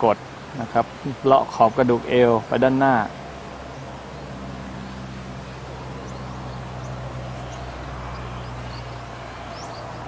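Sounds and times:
low hum and hiss: 0.0 - 10.0
faint high bird chirps: 6.0 - 10.0.

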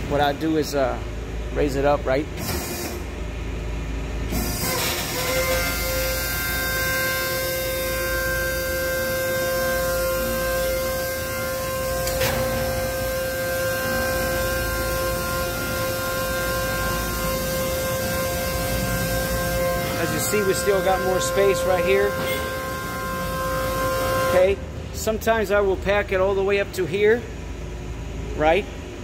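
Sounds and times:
hydraulic pump motor humming: 2.3 - 25.1.

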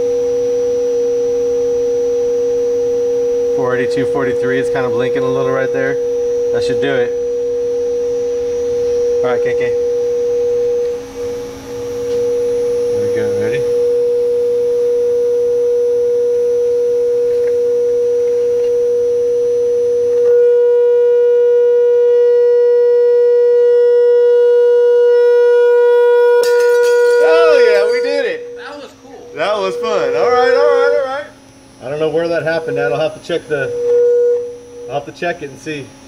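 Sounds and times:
steady sine tone from speakers: 0.0 - 36.0
glass shattering: 26.4 - 28.0.

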